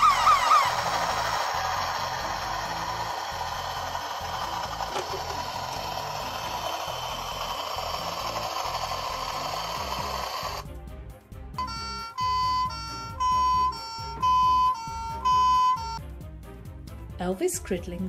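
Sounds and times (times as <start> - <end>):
toy helicopter rotor whirring: 0.0 - 10.7, 11.6 - 16.0
two-pitch electronic beeps: 11.6 - 16.0.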